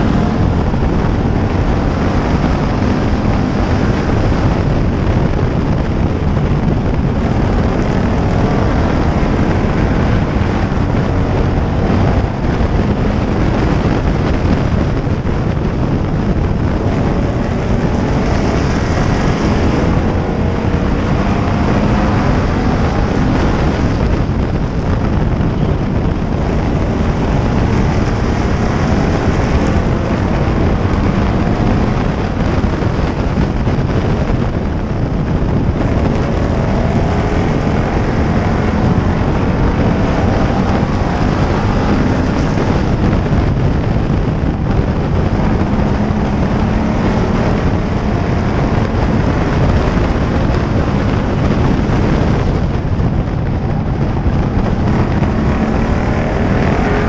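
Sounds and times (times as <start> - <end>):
race car engine running hard: 0.0 - 57.0
wind rush on microphone: 0.0 - 57.0.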